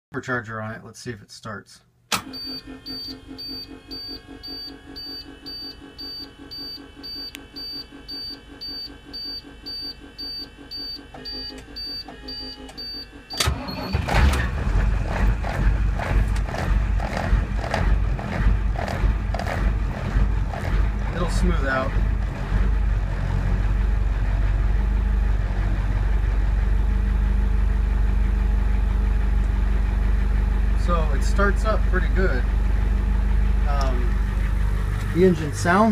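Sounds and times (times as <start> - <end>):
diesel engine cranking and idling: 2.1 - 35.9
dashboard warning chime: 2.3 - 14.0.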